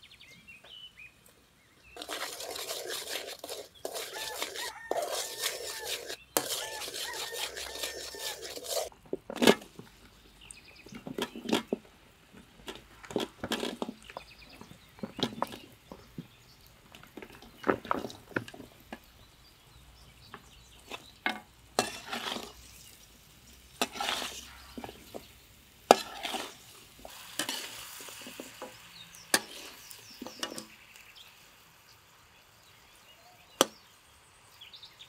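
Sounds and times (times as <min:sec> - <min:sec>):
sauce sizzling in a wok: 0:02.0 - 0:08.9, 0:20.8 - 0:34.5
ladle scraping a wok: 0:02.0 - 0:09.8, 0:12.6 - 0:15.7, 0:20.8 - 0:30.8.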